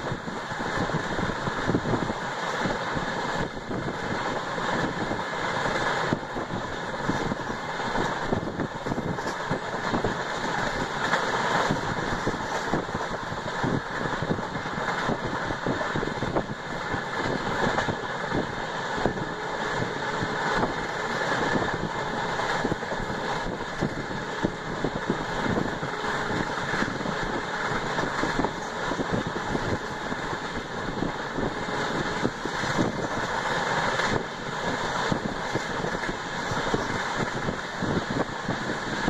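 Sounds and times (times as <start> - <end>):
train wheels rumbling on track: 0.0 - 39.0.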